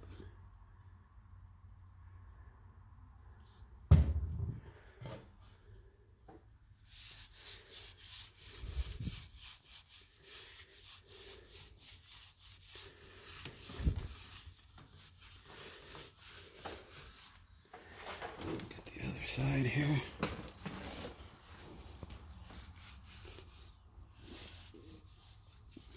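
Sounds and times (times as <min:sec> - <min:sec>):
rag rubbing bicycle frame: 0:06.8 - 0:18.3, 0:19.0 - 0:25.9.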